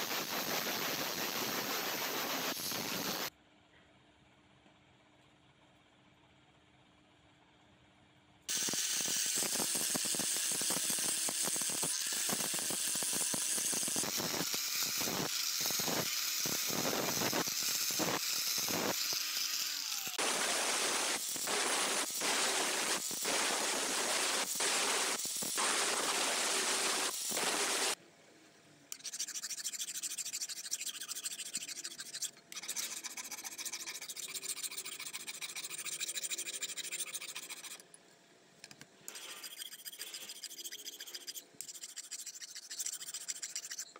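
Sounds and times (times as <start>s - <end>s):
file scraping a knife blade: 28.9s - 37.9s, 39.1s - 43.9s.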